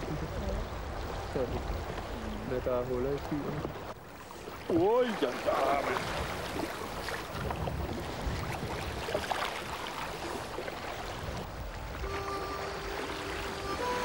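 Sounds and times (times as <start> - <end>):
lake water washing: 0.0 - 14.0
wind rumbling on microphone: 5.7 - 12.2
held musical notes: 11.9 - 14.0.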